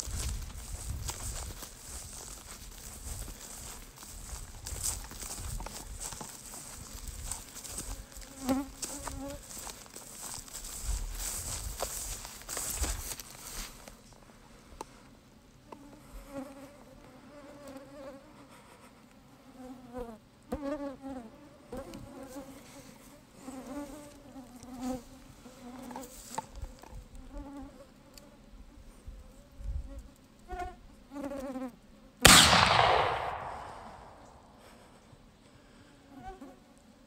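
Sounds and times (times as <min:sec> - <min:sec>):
insects buzzing: 0:00.0 - 0:14.2
gunshot boom: 0:32.3 - 0:34.4.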